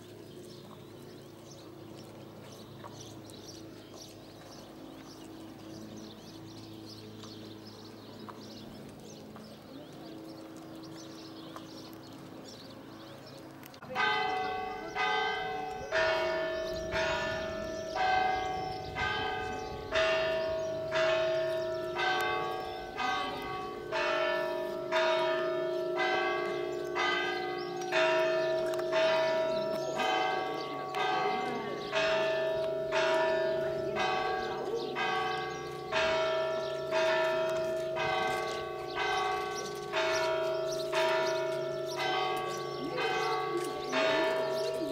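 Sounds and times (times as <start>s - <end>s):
outdoor background: 0.0s - 44.9s
church bells ringing: 1.4s - 44.9s.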